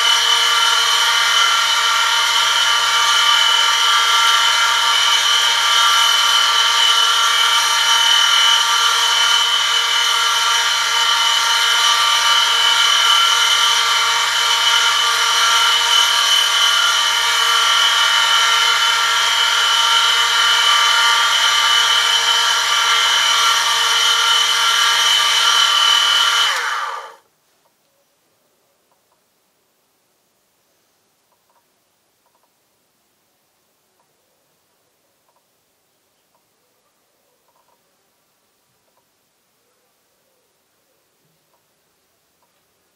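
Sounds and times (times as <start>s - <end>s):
high whine of metal rubbing: 0.0s - 27.2s.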